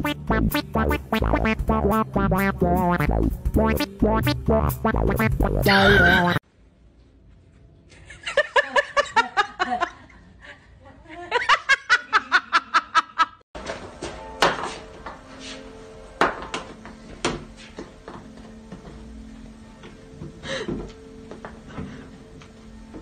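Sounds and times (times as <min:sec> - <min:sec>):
person laughing hard: 0:05.6 - 0:06.4.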